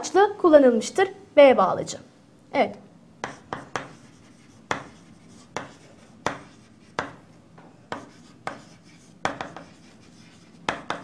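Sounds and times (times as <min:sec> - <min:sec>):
chalk tapping on chalkboard: 0:03.2 - 0:11.0.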